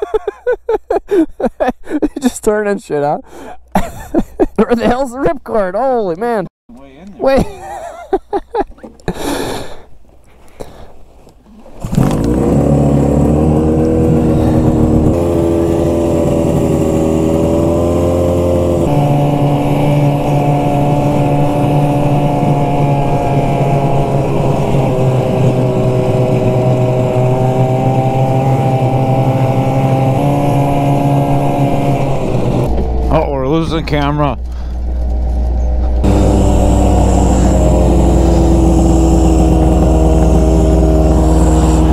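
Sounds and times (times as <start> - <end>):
snowmobile engine running: 11.8 - 41.9.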